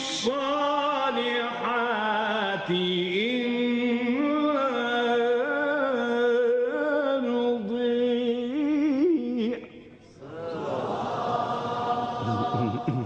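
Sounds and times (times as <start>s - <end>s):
man reciting melodically: 0.0s - 10.0s, 12.2s - 13.0s
many voices calling out: 10.2s - 13.0s.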